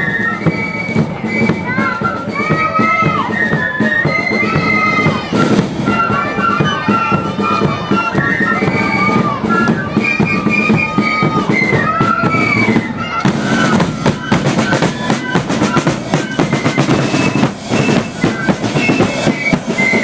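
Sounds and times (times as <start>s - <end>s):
flute melody: 0.0s - 20.0s
rattling side drums: 0.0s - 20.0s
bass drum beats: 13.0s - 20.0s.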